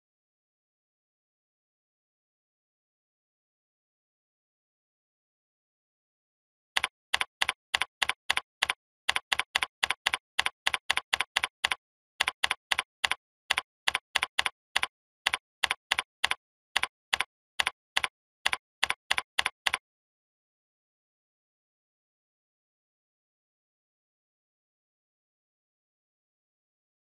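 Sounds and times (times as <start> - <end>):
keyboard keystrokes clicking: 6.8 - 19.8.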